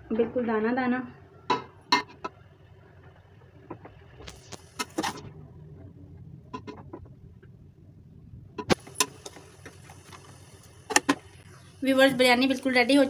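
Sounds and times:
metal spoon scraping a pot: 4.8 - 5.2.

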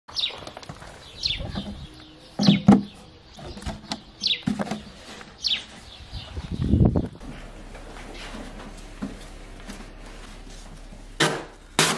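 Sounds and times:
bird calling: 0.1 - 6.9
plastic jug knocks and scrapes: 2.4 - 5.0.

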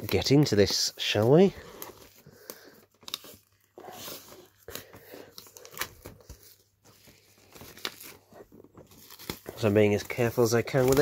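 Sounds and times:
plastic wrap tearing and crinkling: 7.4 - 11.0.

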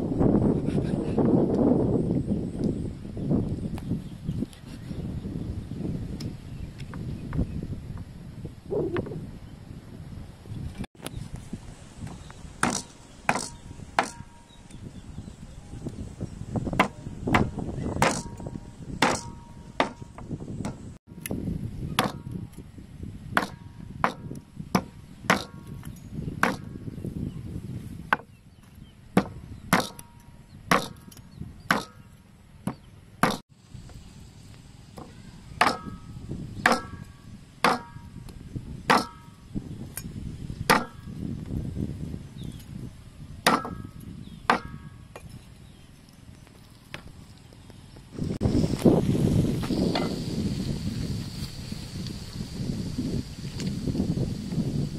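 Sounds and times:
cleaver chopping on wooden block: 12.6 - 14.3, 16.8 - 18.4, 19.0 - 20.9, 22.0 - 22.2, 23.4 - 25.6, 26.4 - 26.7, 29.2 - 30.1, 30.7 - 31.1, 31.7 - 32.0, 32.7 - 33.4, 35.0 - 36.0, 36.6 - 38.0, 38.9 - 39.3, 40.7 - 41.0, 43.4 - 43.9, 44.5 - 45.3.

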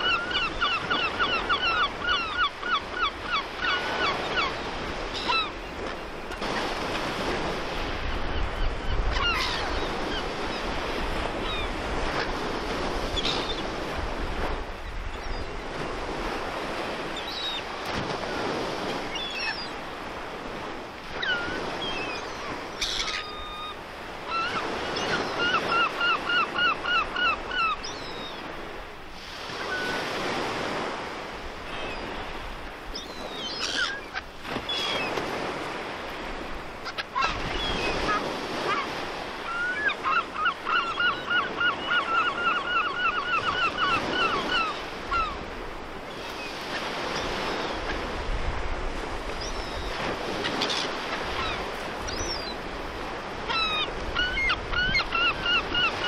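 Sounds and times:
gulls calling: 0.0 - 14.1, 14.8 - 28.7, 29.4 - 56.0
wind: 0.0 - 56.0.

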